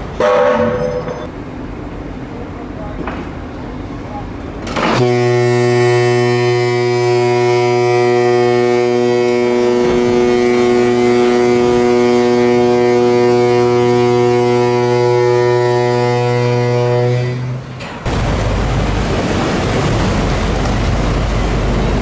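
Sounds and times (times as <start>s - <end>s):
deep ship horn blast: 0.2s - 1.1s, 4.8s - 22.0s
hull splashing into water: 18.0s - 22.0s.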